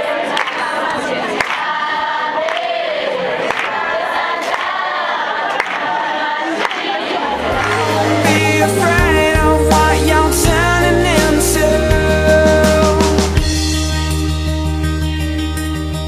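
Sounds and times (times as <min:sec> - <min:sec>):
group singing in chorus: 0:00.0 - 0:13.4
sharp beat: 0:07.5 - 0:14.3.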